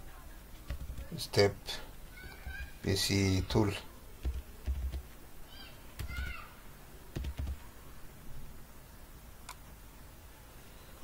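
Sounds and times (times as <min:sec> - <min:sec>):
computer keyboard and mouse clicks: 0:04.2 - 0:05.1, 0:07.1 - 0:07.6.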